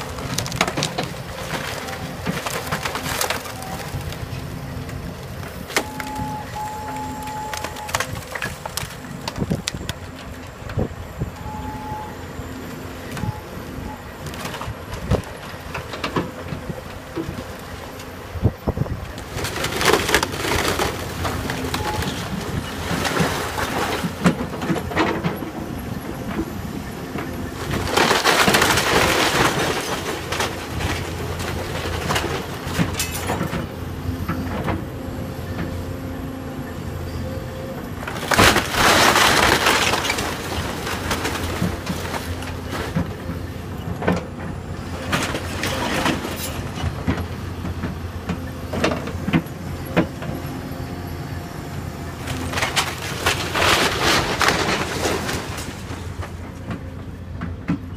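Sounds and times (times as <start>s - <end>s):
wood splintering and crunching: 0.0s - 10.9s, 19.1s - 34.8s, 37.9s - 50.1s, 52.0s - 56.9s
excavator running: 0.0s - 57.9s.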